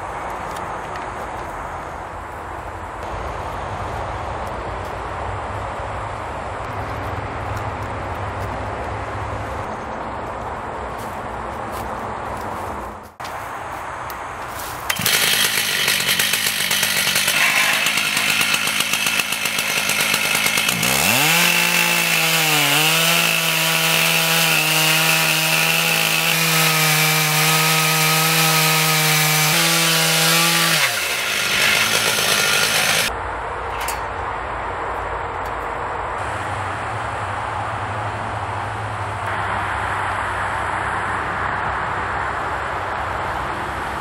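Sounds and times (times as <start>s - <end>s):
chain rasping through wood: 14.9s - 33.1s
chainsaw at full throttle: 14.9s - 33.1s.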